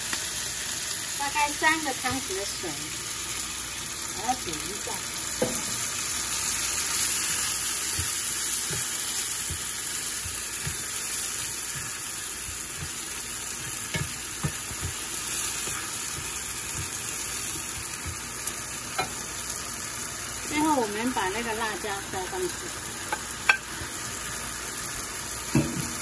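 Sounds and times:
food sizzling in frying pan: 0.0s - 26.0s
spatula knocking against pan: 13.8s - 15.0s.

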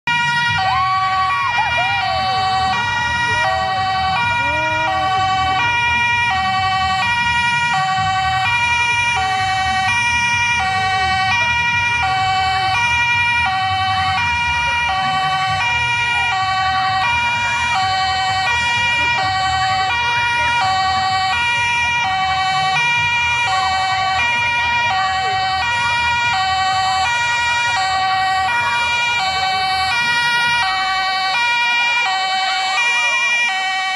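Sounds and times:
two-tone siren: 0.0s - 33.9s
children shouting: 0.1s - 7.2s.

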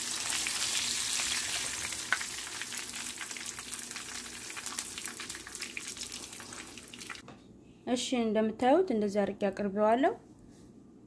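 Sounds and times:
oil sizzling in a frying pan: 0.0s - 7.2s.

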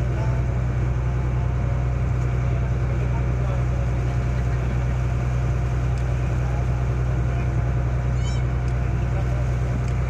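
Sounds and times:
boat engine droning: 0.0s - 10.0s
brief high squeak: 8.1s - 8.5s.

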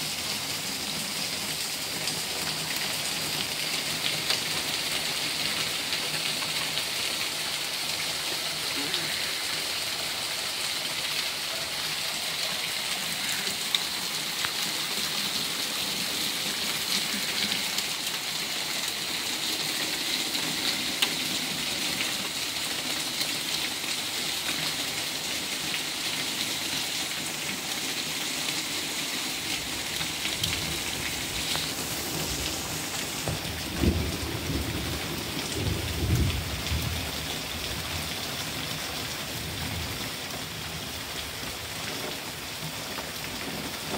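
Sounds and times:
heavy rain on leaves: 0.0s - 43.9s
low rumbles of thunder: 33.3s - 37.2s.

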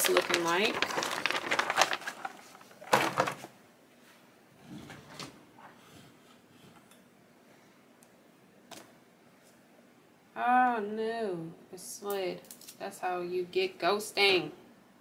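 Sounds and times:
cover sheet rustling and crackling: 0.0s - 3.5s.

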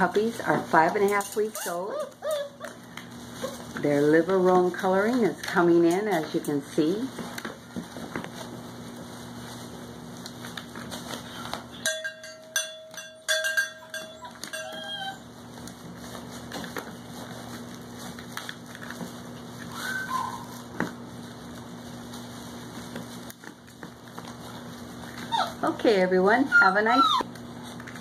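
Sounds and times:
puppy whining: 1.4s - 3.8s, 13.7s - 15.7s, 19.6s - 20.8s, 25.1s - 25.8s, 26.4s - 27.3s.

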